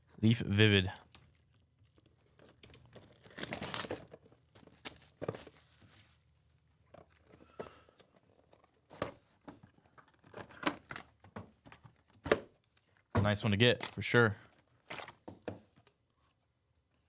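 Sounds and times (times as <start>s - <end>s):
plastic wrap tearing and crinkling: 1.0s - 6.2s.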